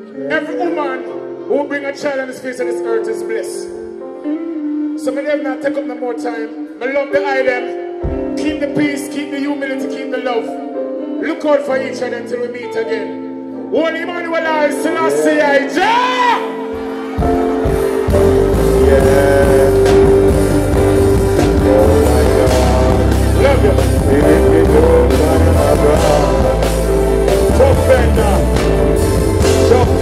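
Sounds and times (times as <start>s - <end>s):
live band playing: 0.0s - 30.0s
held keyboard note: 16.5s - 30.0s.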